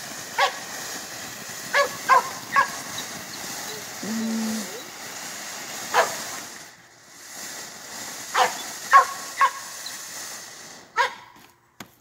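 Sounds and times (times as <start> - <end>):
firework fountain hissing: 0.0 - 12.0
dog barking: 1.7 - 2.8, 5.9 - 6.2, 8.4 - 9.6, 11.0 - 11.3.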